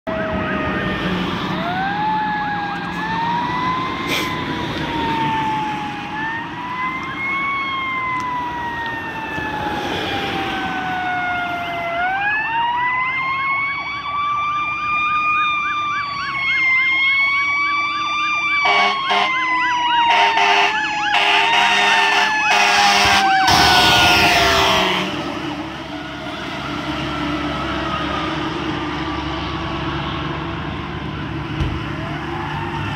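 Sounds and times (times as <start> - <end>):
fire truck siren wailing: 0.0 - 32.9
truck horn blasts: 18.6 - 19.4, 20.0 - 25.4.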